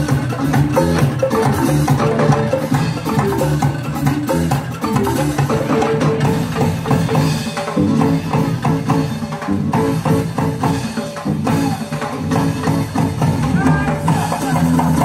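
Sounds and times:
bamboo percussion tune: 0:00.0 - 0:15.0
drums beating a driving rhythm: 0:00.0 - 0:15.0.

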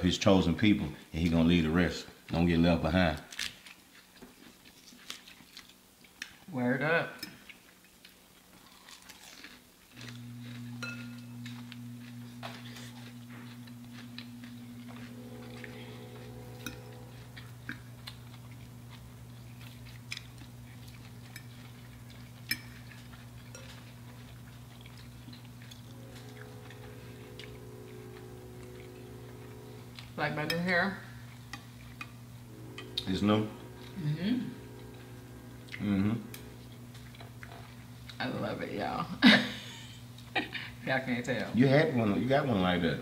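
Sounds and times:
quiet chewing: 0:03.2 - 0:06.5, 0:07.2 - 0:30.2, 0:34.6 - 0:38.2
steady low hum: 0:09.9 - 0:43.0.

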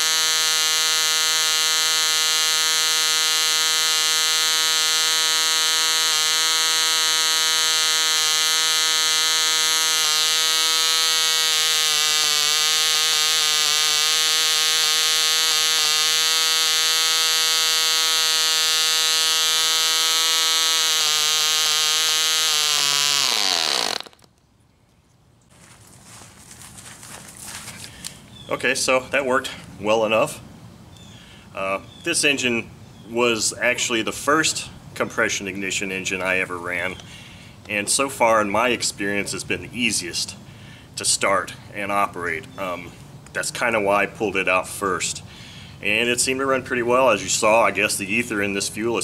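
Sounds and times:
model engine buzzing: 0:00.0 - 0:24.3.

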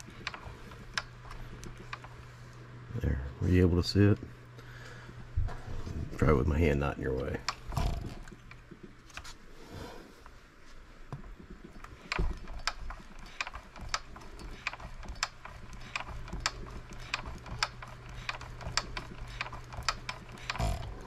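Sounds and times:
engine mechanism clicking: 0:00.0 - 0:02.2, 0:07.3 - 0:09.2, 0:11.7 - 0:21.0.

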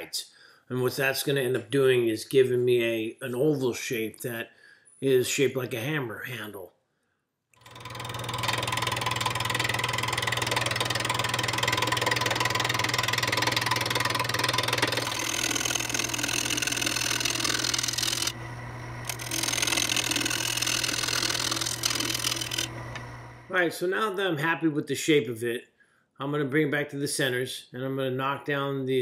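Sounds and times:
lathe motor humming: 0:07.6 - 0:23.5
tool cutting wood: 0:07.6 - 0:23.5.

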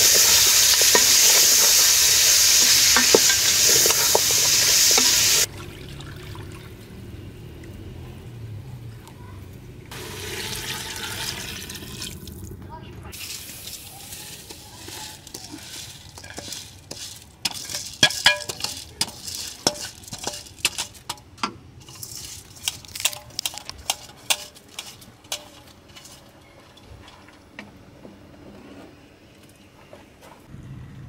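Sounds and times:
wooden spoon knocking on metal: 0:02.7 - 0:05.2, 0:17.4 - 0:21.6.

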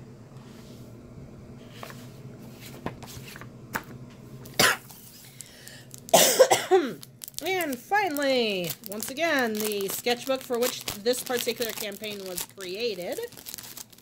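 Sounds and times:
low steady hum: 0:00.0 - 0:14.0
plastic rustling and taps: 0:02.7 - 0:06.2, 0:07.1 - 0:14.0
person coughing: 0:04.6 - 0:05.0, 0:06.1 - 0:07.0.

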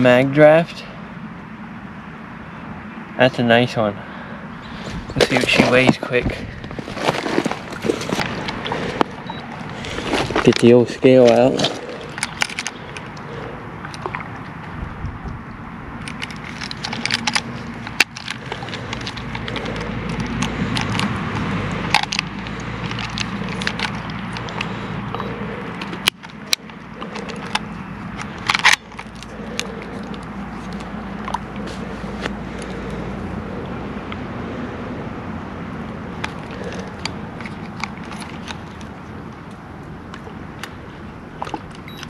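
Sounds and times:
steady low rumble: 0:00.0 - 0:42.0
handling noise with sharp clicks: 0:06.6 - 0:33.0, 0:36.1 - 0:42.0.

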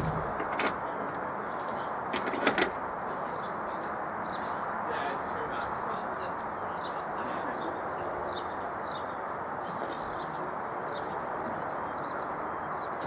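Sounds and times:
outdoor background rush: 0:00.0 - 0:13.0
small birds chirping: 0:03.1 - 0:13.0.

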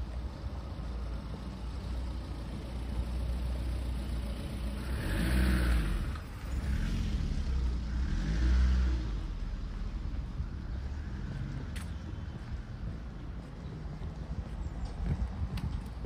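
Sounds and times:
low traffic rumble: 0:00.0 - 0:16.0
car passing: 0:04.6 - 0:13.1.

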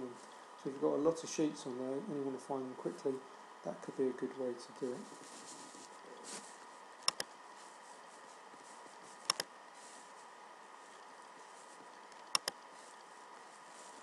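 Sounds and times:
faint hiss: 0:00.0 - 0:06.9
mouse button clicks: 0:12.2 - 0:12.6.

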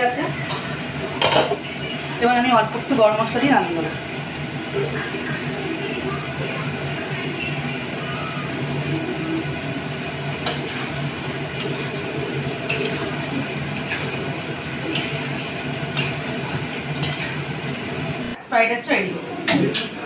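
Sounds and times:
steady background hum: 0:00.0 - 0:20.0
spatula stirring curry: 0:09.8 - 0:18.3.

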